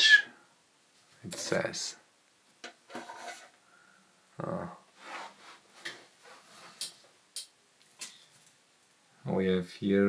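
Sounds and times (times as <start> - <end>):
rubbing and light scraping: 2.8 - 3.6, 5.0 - 7.0.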